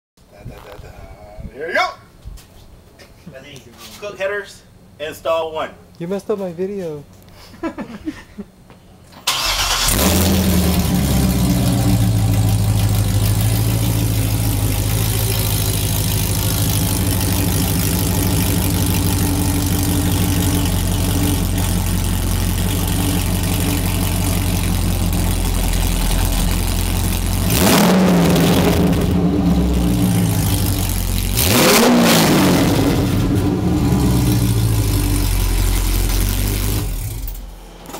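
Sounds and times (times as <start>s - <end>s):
car engine idling and revving: 9.3s - 37.9s.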